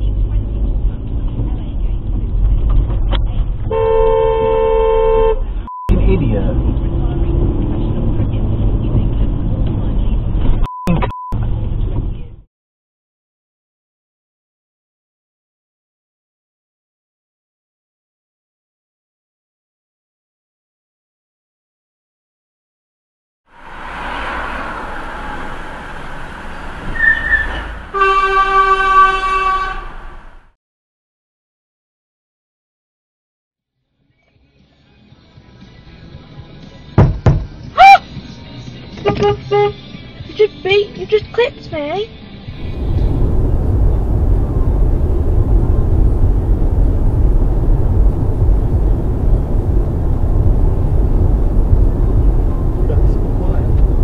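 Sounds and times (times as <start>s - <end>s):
tyre and wind noise in car: 0.0s - 4.7s, 6.4s - 10.7s, 11.3s - 12.4s, 42.5s - 54.0s
road traffic noise: 0.0s - 12.4s, 23.5s - 30.6s, 35.4s - 54.0s
vehicle horn blast: 3.7s - 5.5s, 27.9s - 30.0s, 39.0s - 39.8s
short high squeak: 26.8s - 27.8s.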